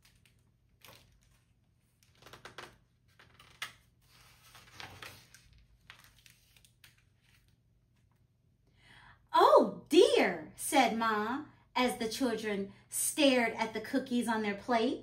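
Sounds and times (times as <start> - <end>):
book pages rustling: 0.0 - 8.2.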